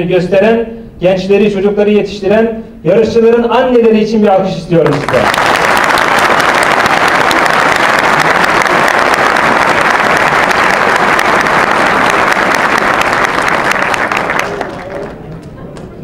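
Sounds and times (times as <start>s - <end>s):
audience applauding: 4.8s - 15.9s.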